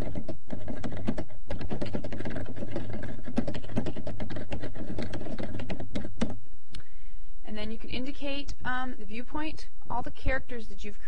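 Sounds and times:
typing on computer keyboard: 0:00.0 - 0:06.4.

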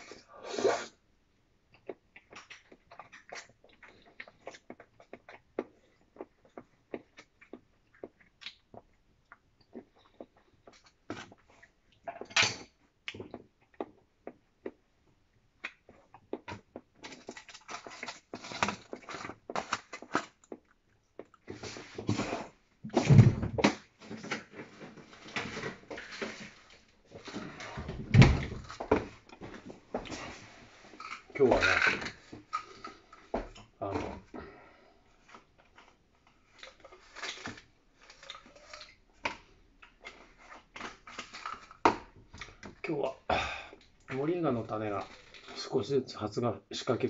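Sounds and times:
eating sounds: 0:01.7 - 0:12.3
rustling and handling noise: 0:21.4 - 0:34.4.

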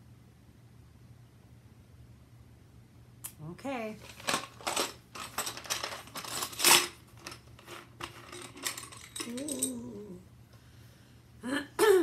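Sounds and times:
person humming: 0:09.2 - 0:10.3, 0:11.4 - 0:12.0.

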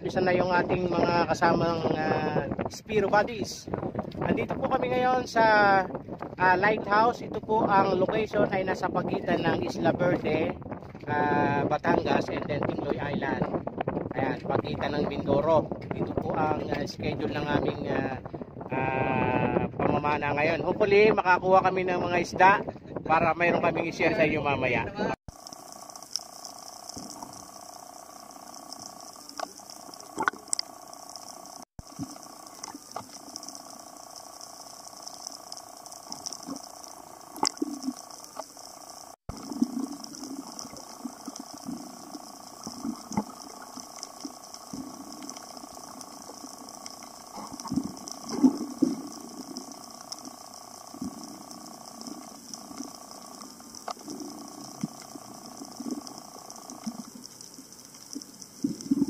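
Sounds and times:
underwater steady hum: 0:00.0 - 0:59.0
low bubbling gurgles: 0:25.3 - 0:59.0
sharp clicks: 0:25.3 - 0:59.0.

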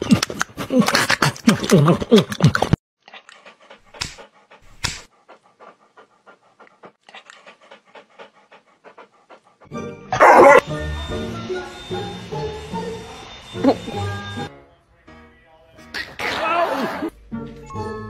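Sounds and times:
dog panting: 0:02.6 - 0:10.6.

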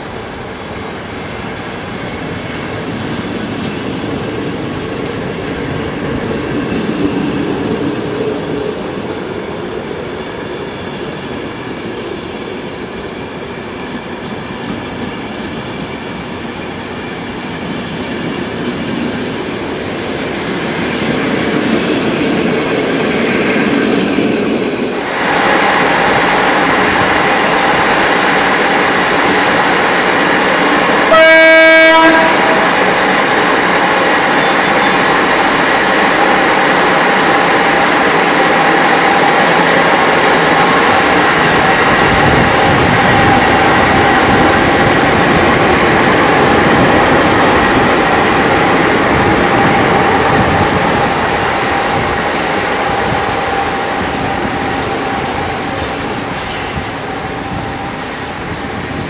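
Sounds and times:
electric locomotive humming: 0:00.0 - 0:59.0
passenger coaches rolling on rails: 0:00.0 - 0:59.0
locomotive horn blast: 0:31.1 - 0:32.8.

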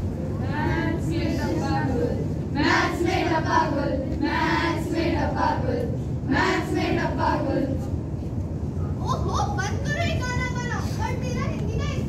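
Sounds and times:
children singing in unison: 0:00.4 - 0:07.7.

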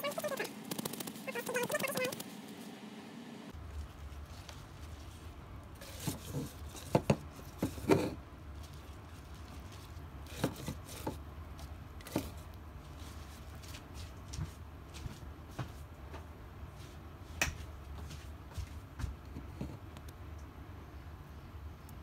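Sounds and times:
leaves rustling in blender jar: 0:00.0 - 0:02.6, 0:03.6 - 0:14.2.

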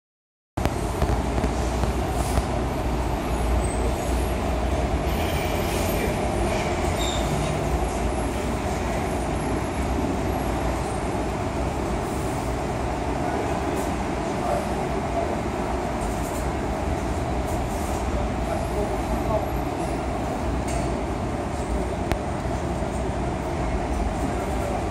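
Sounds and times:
steady low rumble: 0:00.6 - 0:03.6.

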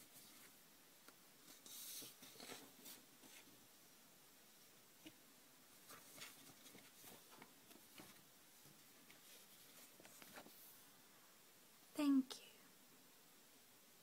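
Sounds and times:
paper cards rustling: 0:01.4 - 0:03.5, 0:05.8 - 0:10.6.

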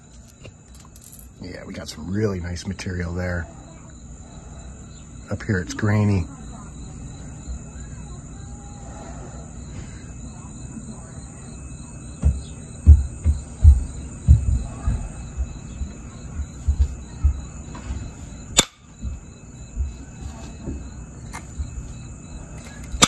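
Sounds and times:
dull handling thumps: 0:12.2 - 0:17.5.

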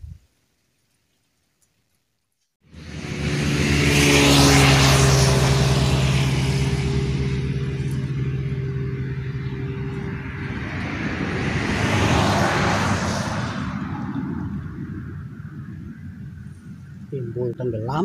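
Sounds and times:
engine hum: 0:02.6 - 0:18.0
rushing noise: 0:02.7 - 0:16.9.

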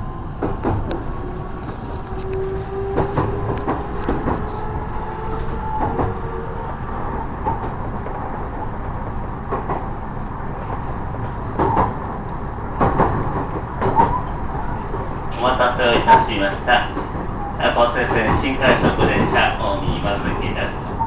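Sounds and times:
train running rumble: 0:00.0 - 0:21.0
wheels clacking over rail joints: 0:00.4 - 0:08.4.

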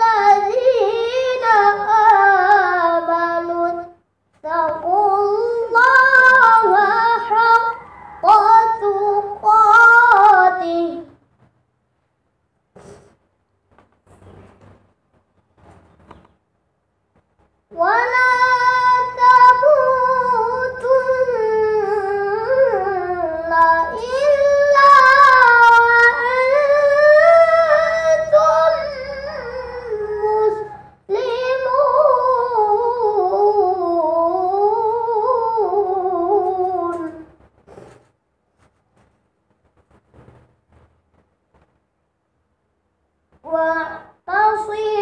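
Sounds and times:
boy reciting melodically: 0:00.0 - 0:11.5, 0:17.6 - 0:40.2, 0:43.3 - 0:45.0.

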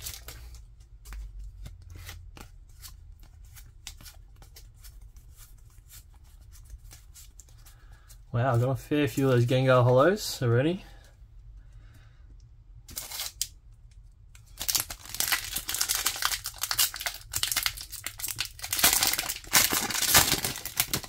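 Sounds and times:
foil wrapper tearing: 0:12.9 - 0:13.5, 0:14.5 - 0:21.0
foil wrapper crinkling: 0:14.4 - 0:21.0.

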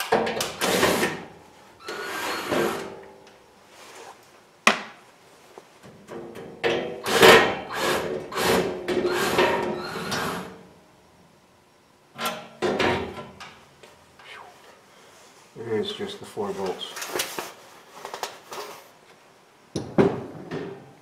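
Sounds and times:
sheet metal panel scraping: 0:01.8 - 0:03.0.

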